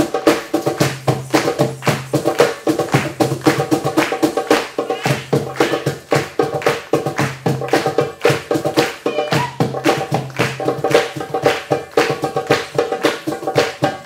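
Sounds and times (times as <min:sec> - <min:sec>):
hand drums fast rhythm: 0:00.0 - 0:14.0
held tones: 0:09.0 - 0:09.6.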